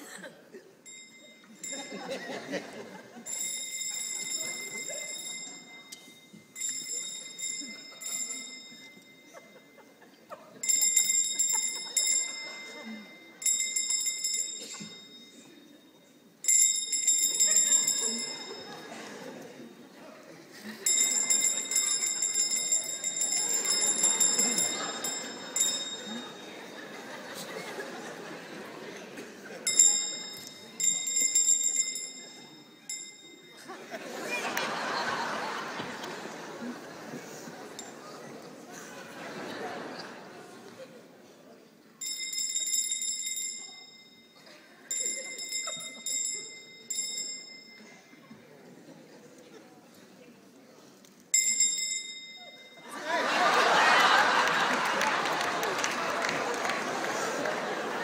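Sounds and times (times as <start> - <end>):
alarm clock bell ringing: 0.8 - 10.0, 10.6 - 19.5, 20.8 - 28.6, 29.6 - 36.6, 42.0 - 48.2, 51.4 - 58.0
faint murmur of voices: 47.5 - 51.3.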